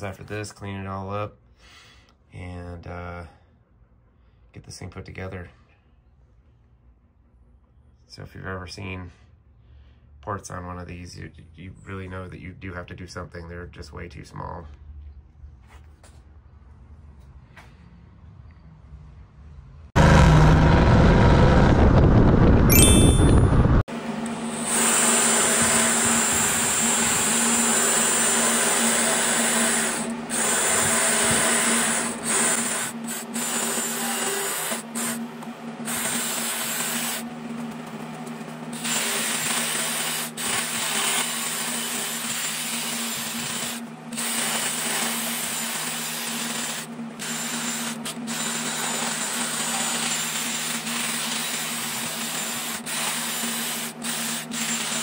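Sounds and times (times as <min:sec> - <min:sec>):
die grinder grinding metal: 0:24.2 - 0:55.0.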